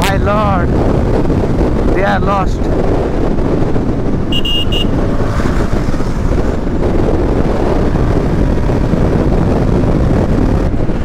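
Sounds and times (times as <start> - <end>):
wind buffeting microphone: 0.0 - 11.0
high double beep: 4.3 - 4.9.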